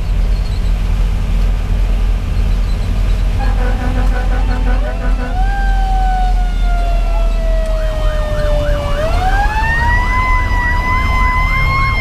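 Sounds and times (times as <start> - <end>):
diesel engine rumbling: 0.0 - 12.0
electronic siren yelping: 3.4 - 12.0
mechanical siren wailing: 3.4 - 12.0.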